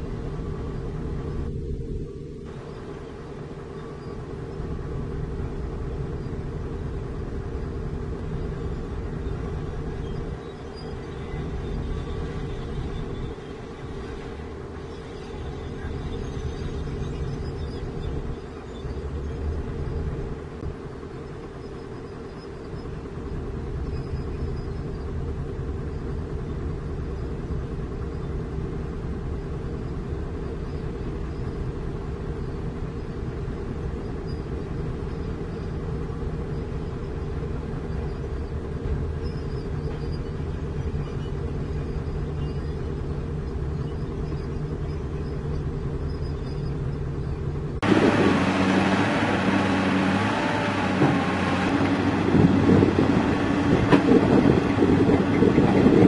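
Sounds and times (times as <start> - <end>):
bulldozer diesel engine running: 0.0 - 56.0
excavator bucket digging earth: 47.8 - 56.0.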